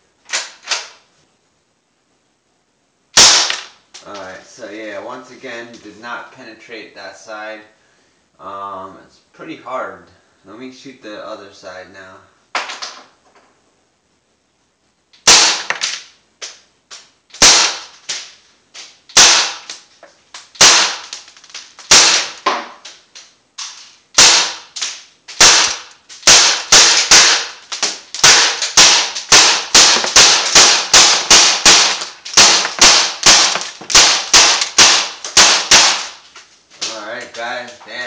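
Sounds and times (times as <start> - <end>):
bb rifle shots cracking: 3.2 - 3.8, 15.2 - 16.1, 17.4 - 18.3, 19.1 - 19.8, 20.6 - 23.0, 23.6 - 36.2
bbs striking plastic: 25.6 - 36.5.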